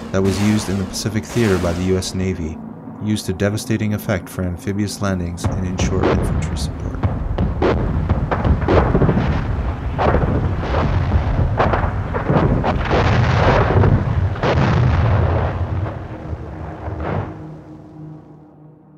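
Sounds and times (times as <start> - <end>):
explosions: 0.0 - 2.6, 5.2 - 17.7
low rumble: 0.0 - 18.9.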